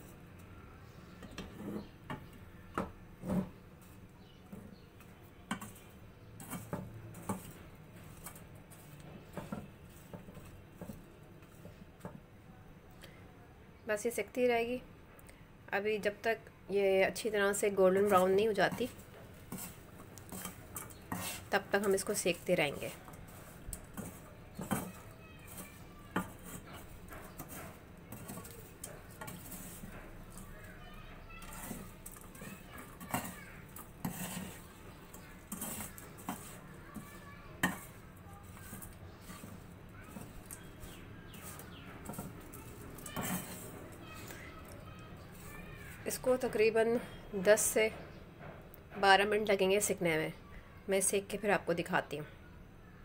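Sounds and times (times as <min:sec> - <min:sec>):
peanuts scraping in salt: 0:05.5 - 0:11.8, 0:17.2 - 0:46.6.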